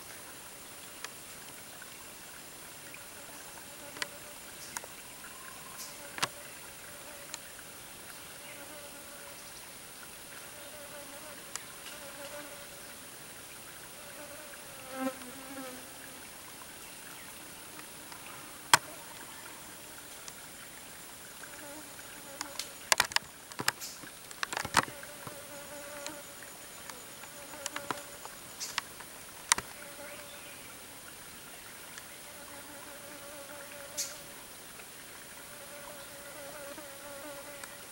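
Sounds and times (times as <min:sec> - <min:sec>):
insects buzzing and droning: 0:00.0 - 0:37.9
sharp clicks and snaps: 0:22.4 - 0:24.9.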